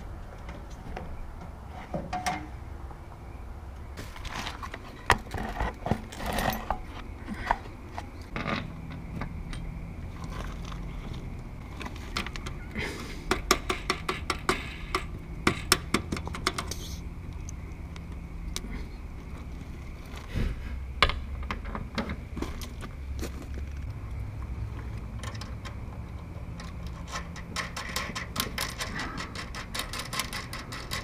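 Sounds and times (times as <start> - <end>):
low steady hum: 0.0 - 31.0
metal clicks and scrapes: 24.9 - 31.0.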